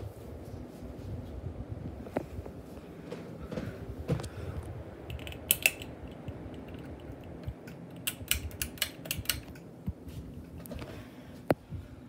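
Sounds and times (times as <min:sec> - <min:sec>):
ceiling fan rumbling: 0:00.0 - 0:12.0
sharp clicks: 0:05.1 - 0:09.7.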